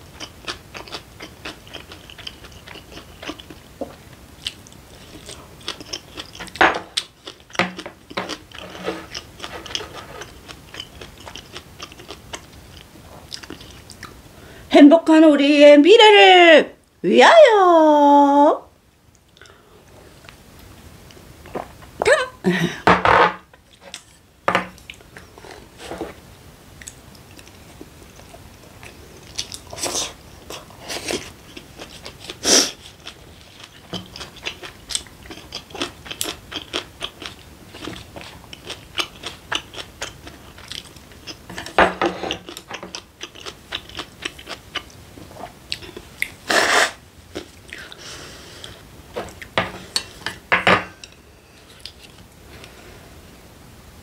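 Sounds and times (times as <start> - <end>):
chewing and mouth noises: 0.2 - 14.2, 26.8 - 48.0.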